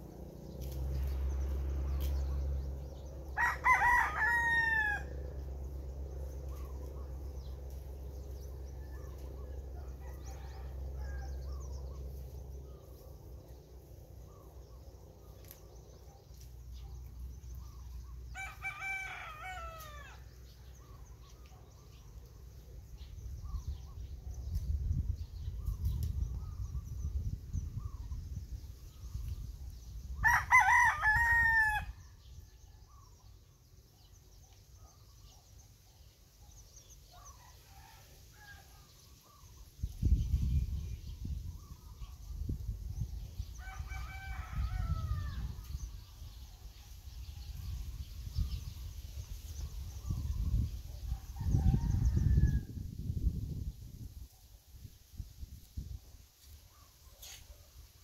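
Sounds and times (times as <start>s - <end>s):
low rumbling: 0.0s - 3.4s
rooster crowing: 3.4s - 5.3s, 18.3s - 20.3s, 30.2s - 32.0s, 43.5s - 45.5s.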